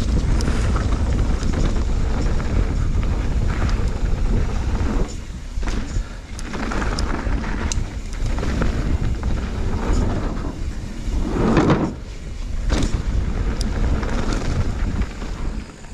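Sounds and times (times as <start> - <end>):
low rumble: 0.0 - 15.7
bike clicks and rattles: 0.0 - 15.9
bike tyres on dirt trail: 0.0 - 15.9
wind buffeting microphone: 0.0 - 15.9.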